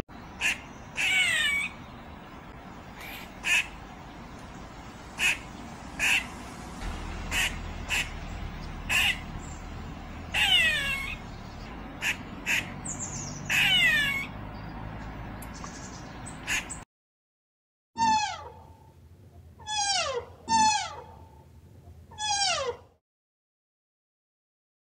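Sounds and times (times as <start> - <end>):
long falling animal calls: 6.0 - 11.3, 13.5 - 14.4, 22.1 - 22.9
animal calls: 10.3 - 11.3, 13.5 - 14.4, 19.6 - 21.4, 22.1 - 23.0.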